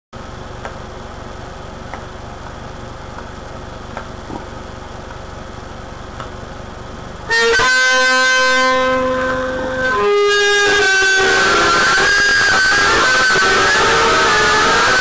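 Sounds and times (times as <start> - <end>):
steady low hum: 0.2 - 15.0.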